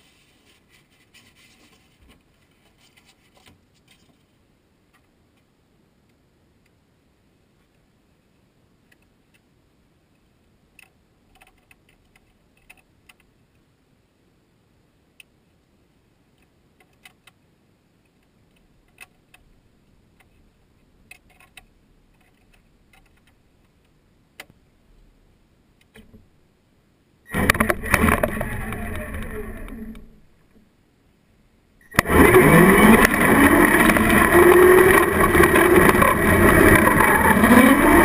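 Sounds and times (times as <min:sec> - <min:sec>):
faint clicks and ticks: 0:07.6 - 0:13.7, 0:15.2 - 0:15.4, 0:16.3 - 0:17.4, 0:18.0 - 0:25.1, 0:27.3 - 0:30.7, 0:31.8 - 0:38.0
toy truck motor whine: 0:27.3 - 0:30.2, 0:31.9 - 0:38.0.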